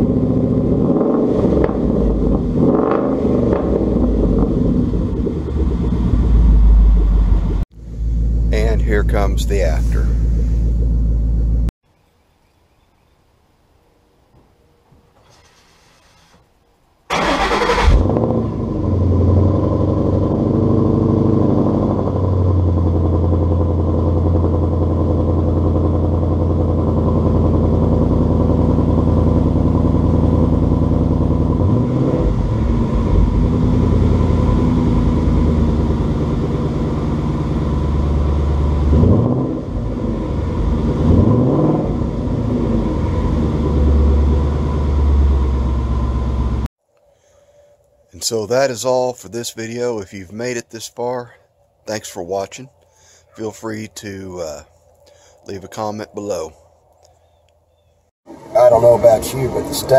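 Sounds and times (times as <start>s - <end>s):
car engine exhaust idling and revving: 0.0s - 11.7s, 17.8s - 46.7s.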